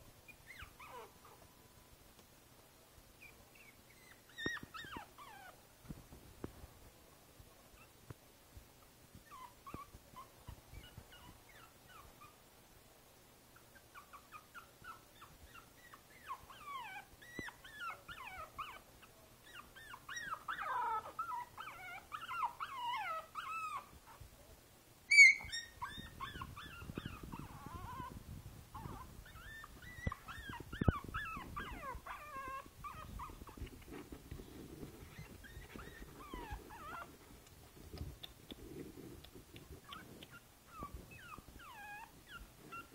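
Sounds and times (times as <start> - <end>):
puppy whimpering and whining: 0.3 - 1.5, 3.2 - 5.6, 9.2 - 12.4, 13.6 - 24.2, 25.1 - 37.2, 39.7 - 42.9
puppy yelp: 0.4 - 1.4, 3.2 - 5.6, 13.8 - 24.2, 25.1 - 34.0, 35.0 - 37.1, 39.8 - 42.9.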